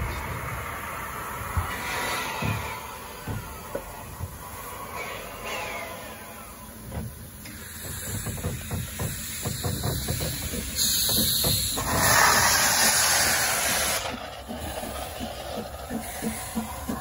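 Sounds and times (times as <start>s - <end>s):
steam hissing: 0.0s - 17.0s
rhythmic low beat: 14.4s - 17.0s.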